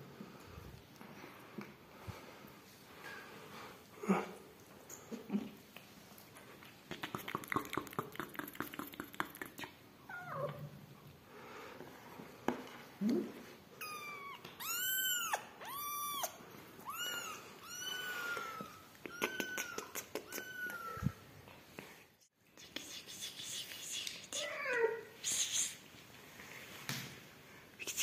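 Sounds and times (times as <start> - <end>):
kitten mewing: 13.8 - 21.2.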